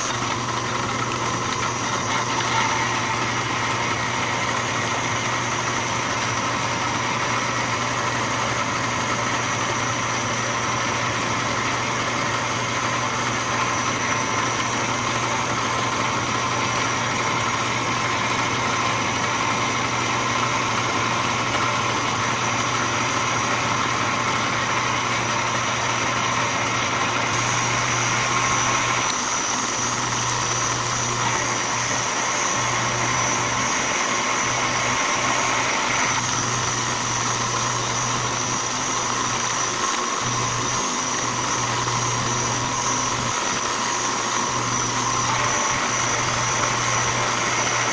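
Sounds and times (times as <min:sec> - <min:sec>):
metal lathe humming with high whine: 0:00.0 - 0:47.9.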